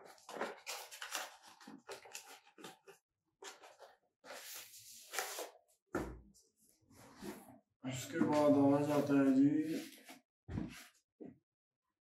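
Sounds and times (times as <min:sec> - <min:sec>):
cardboard and paper rustling: 0:00.0 - 0:05.7.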